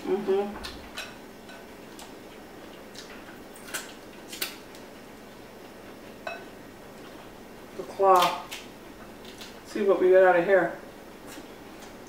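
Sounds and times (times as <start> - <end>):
crab shell cracking: 2.9 - 4.9, 8.1 - 9.6.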